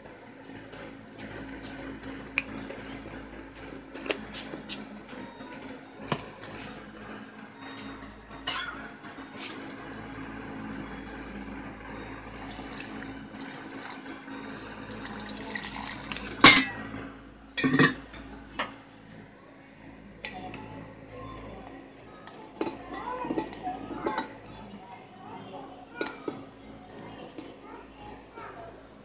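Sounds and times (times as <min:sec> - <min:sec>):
steel bowl and utensils clinking: 0:08.4 - 0:08.8, 0:12.4 - 0:14.0, 0:14.9 - 0:16.9, 0:17.6 - 0:18.7, 0:22.6 - 0:24.4
water pouring into bowl: 0:12.4 - 0:14.0, 0:14.9 - 0:16.4.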